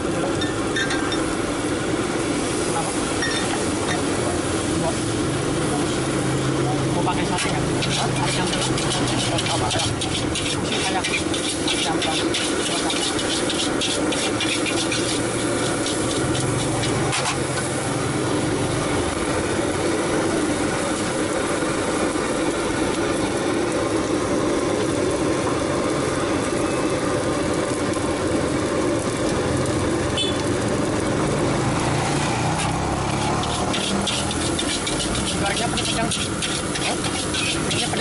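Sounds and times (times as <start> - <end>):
wok burner roaring: 0.0 - 38.0
metal spatula scraping a wok: 7.2 - 17.7, 32.5 - 38.0.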